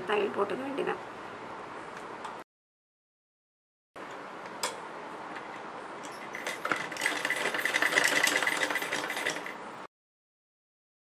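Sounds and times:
sewing machine stitching: 6.1s - 9.6s.

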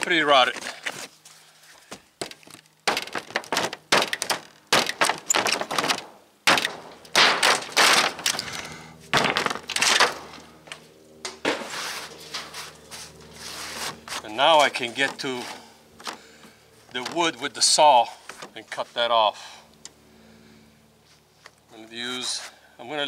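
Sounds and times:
metal cracking and crumbling: 2.2s - 10.5s.

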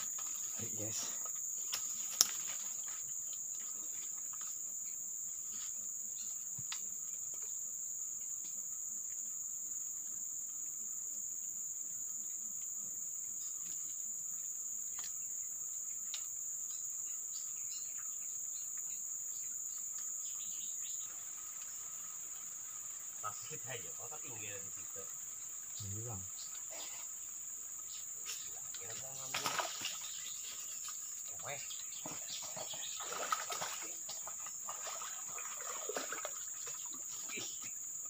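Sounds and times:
insect chorus drone: 0.0s - 38.0s.

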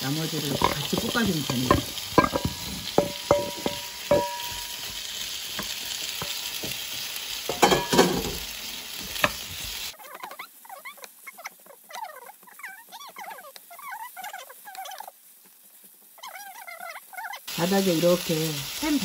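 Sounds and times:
vegetables sizzling in frying pan: 0.0s - 10.7s, 17.4s - 19.0s
wooden spatula scraping pan: 0.3s - 9.8s
metal bowl knocking against pan: 0.4s - 6.9s, 7.5s - 8.4s
high chirping squiggles: 10.0s - 15.1s.

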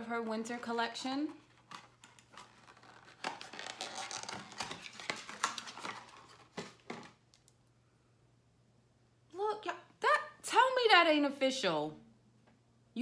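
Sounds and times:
cardboard rustling and scraping: 1.3s - 7.2s.

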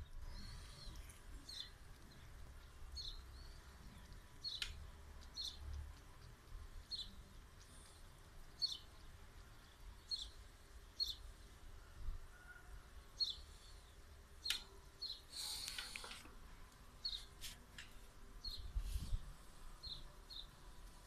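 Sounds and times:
small bird chirping: 0.0s - 11.4s, 12.4s - 16.0s, 17.0s - 17.4s.

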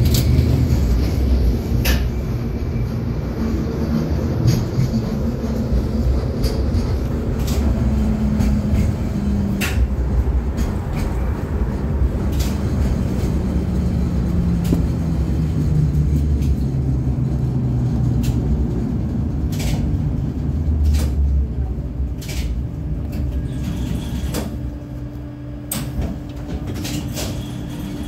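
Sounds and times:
tram motor hum: 0.0s - 28.0s
wheels rumbling on rails: 0.0s - 28.0s
sharp clicks and knocks: 8.4s - 11.2s.

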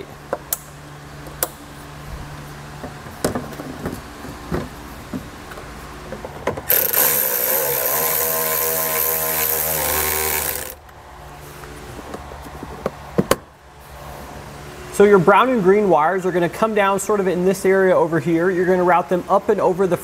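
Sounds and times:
cordless power driver running: 6.7s - 10.9s.

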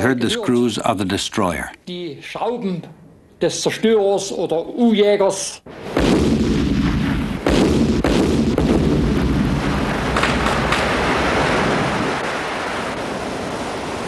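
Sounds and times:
depth charge booms: 5.7s - 12.2s
dense low rumble: 6.0s - 12.0s.

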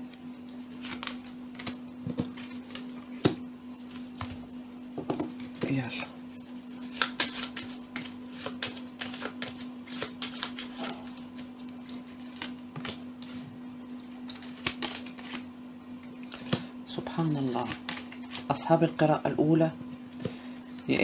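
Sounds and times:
cards being shuffled: 0.4s - 4.4s, 5.2s - 15.5s, 17.2s - 18.6s.

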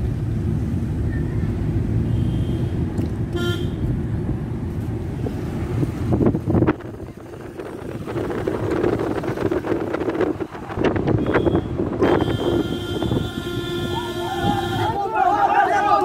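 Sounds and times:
car road and engine rumble: 0.0s - 16.0s
rush of traffic: 0.0s - 16.0s
short vehicle horn toot: 2.1s - 3.8s, 11.2s - 15.0s.

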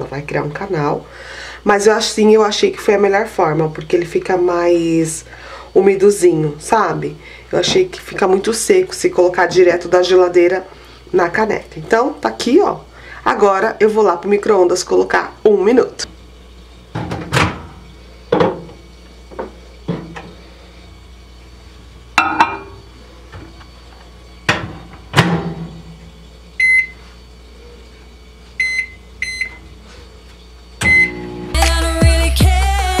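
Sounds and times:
mug set down: 22.2s - 22.8s
keypad beeps: 26.6s - 27.0s
background music: 31.5s - 33.0s.

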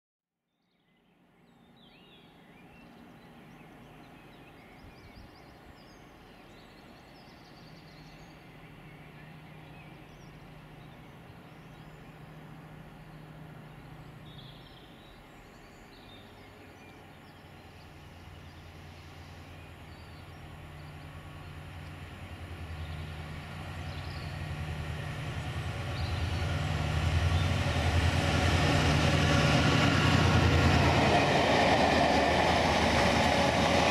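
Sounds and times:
diesel locomotive engine drone: 2.0s - 33.9s.

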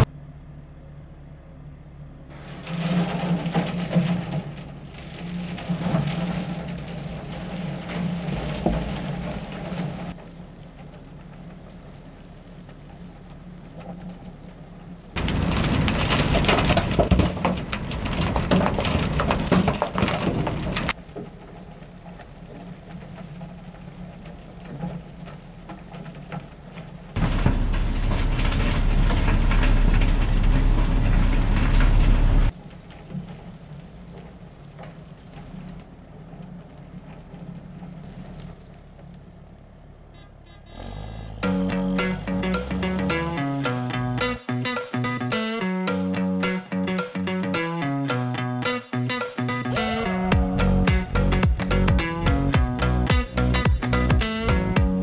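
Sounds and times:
diesel engines running: 0.0s - 19.5s, 20.4s - 48.7s, 49.5s - 55.0s
asphalt rattling into truck bed: 2.3s - 44.4s.

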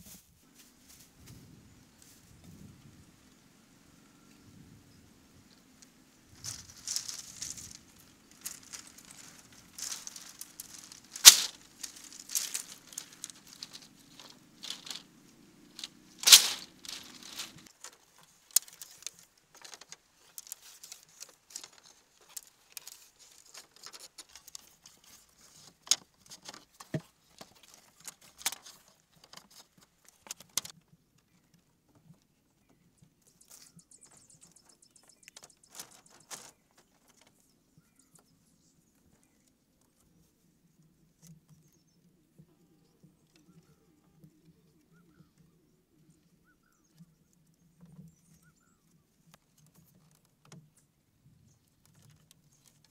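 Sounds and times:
rustling and scraping: 0.0s - 2.6s, 5.6s - 40.4s
bamboo poles knocking: 8.4s - 15.1s.

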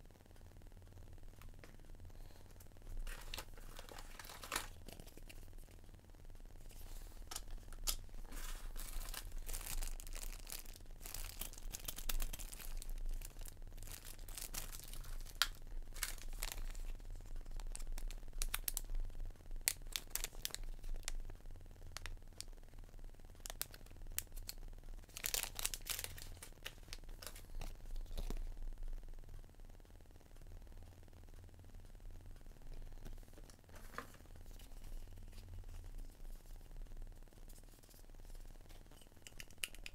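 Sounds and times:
paper rustling: 3.0s - 5.4s, 6.7s - 10.6s
plastic bag crinkling: 3.0s - 5.7s, 6.7s - 18.9s, 23.5s - 28.4s.

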